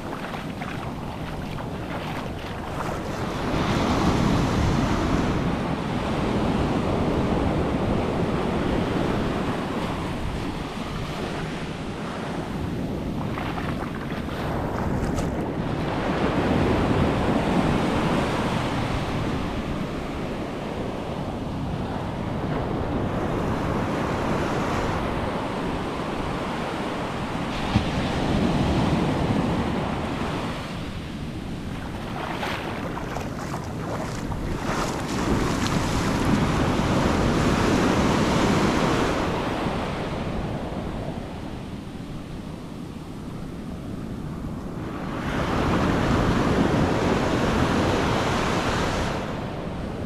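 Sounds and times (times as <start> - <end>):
small waves breaking on sand: 0.0 - 19.4, 22.7 - 41.0.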